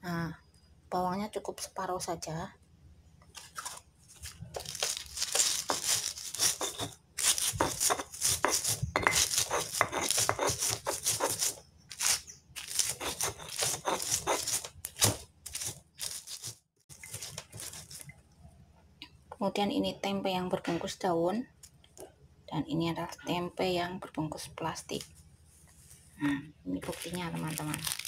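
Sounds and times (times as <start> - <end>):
stone pestle grinding in mortar: 4.6 - 18.1.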